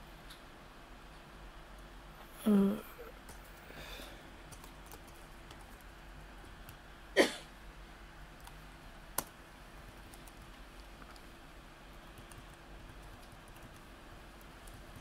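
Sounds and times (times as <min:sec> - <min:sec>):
laptop keyboard typing: 0:04.4 - 0:06.8, 0:08.4 - 0:11.3, 0:11.9 - 0:15.0.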